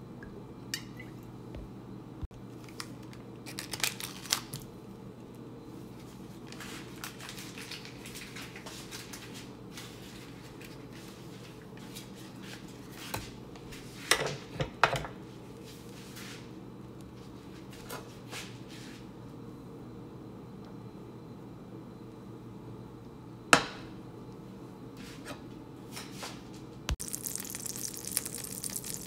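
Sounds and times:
butter crackling in frying pan: 27.0 - 29.0.

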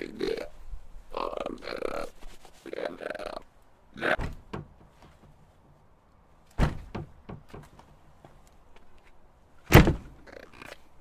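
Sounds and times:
heavy thump: 6.6 - 7.8, 9.7 - 10.1.

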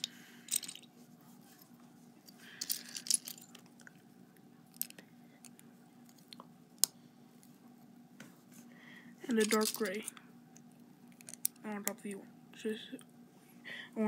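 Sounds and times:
plastic pieces rattling: 0.5 - 0.9, 2.6 - 3.7, 9.3 - 10.1.

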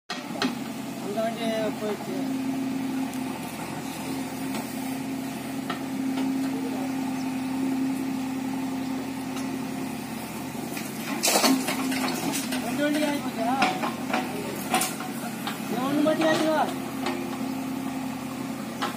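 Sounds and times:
diesel engine idling: 0.1 - 18.9
rattling clatter: 10.7 - 17.2.

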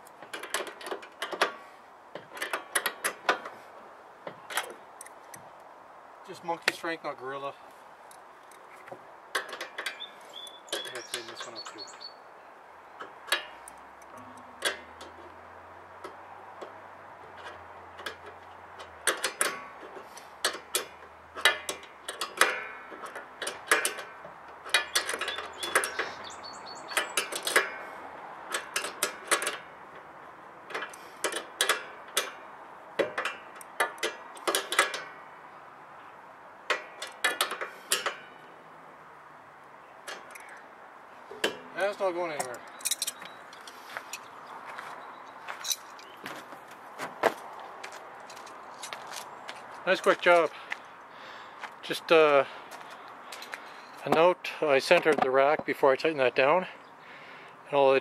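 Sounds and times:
wrench clicking on metal bolt: 2.2 - 3.5, 13.0 - 15.3, 16.0 - 26.2, 26.9 - 27.9, 28.5 - 29.7, 30.7 - 32.4, 33.0 - 35.2, 36.7 - 38.3, 40.0 - 40.6.

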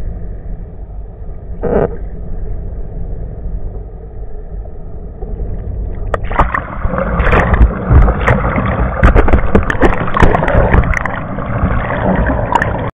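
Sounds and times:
low rumble: 0.0 - 12.9
muffled underwater sound: 0.0 - 12.9
water splashing with droplet hits: 6.1 - 12.9.

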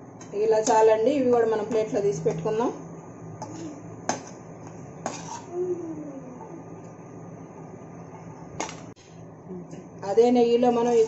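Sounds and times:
spoon stirring in frying pan: 3.4 - 5.5.

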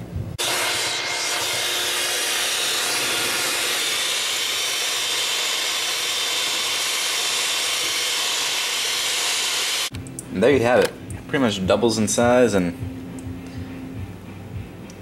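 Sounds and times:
electric hand mixer whipping: 0.4 - 9.9.

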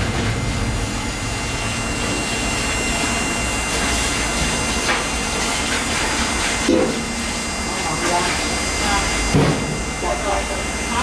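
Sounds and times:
machinery running: 0.0 - 11.0
faint high whine: 0.5 - 5.2, 7.4 - 11.0.

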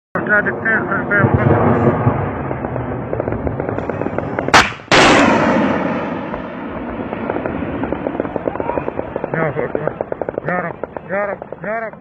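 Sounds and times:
constant crackling: 0.2 - 12.0
missile launch crack and roar: 1.0 - 9.2.

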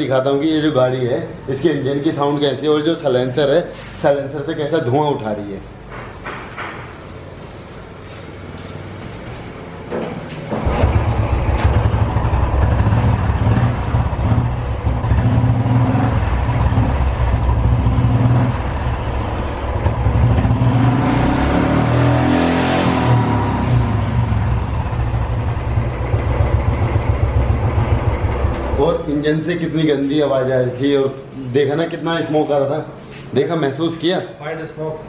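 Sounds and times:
motorcycle kick-start: 10.5 - 12.5
rough motorcycle engine revving: 10.5 - 29.4.

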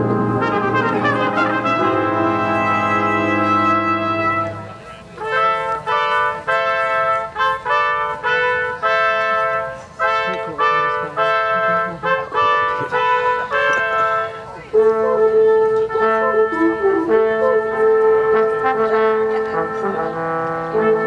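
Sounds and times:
orchestra brass fanfare: 0.0 - 21.0.

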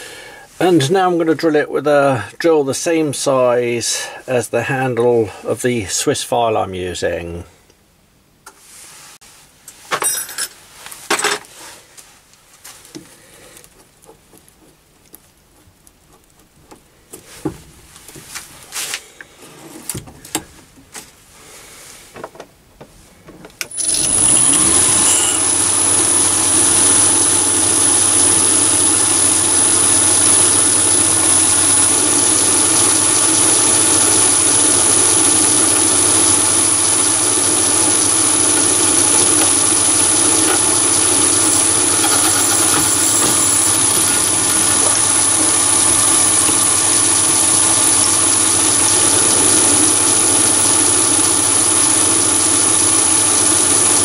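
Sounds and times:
drill boring into metal: 23.7 - 26.7, 38.2 - 51.9
lathe motor whining: 23.7 - 27.5, 36.7 - 53.2
tools clicking and knocking: 40.4 - 45.5.

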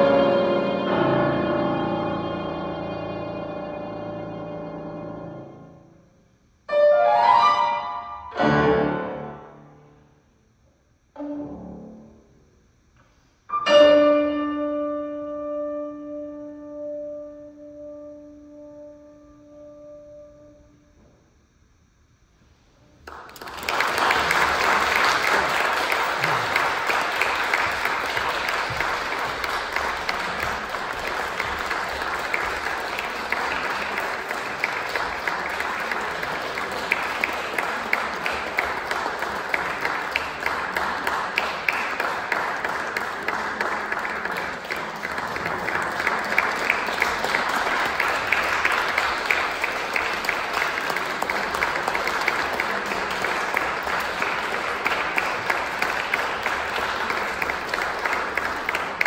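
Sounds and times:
audience applauding: 23.0 - 59.0.

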